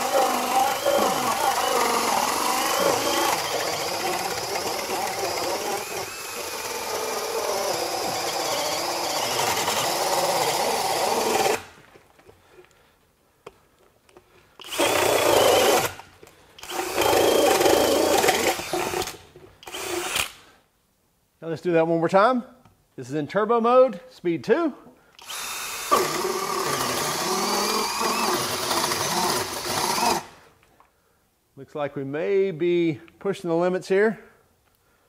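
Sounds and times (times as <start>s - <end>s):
drill boring through wood: 0.0s - 11.8s, 14.6s - 16.0s, 16.6s - 20.4s, 25.2s - 30.4s.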